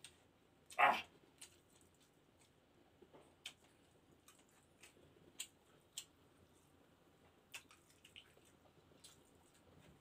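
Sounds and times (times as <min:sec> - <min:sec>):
person eating with lip smacks: 0:07.5 - 0:09.6.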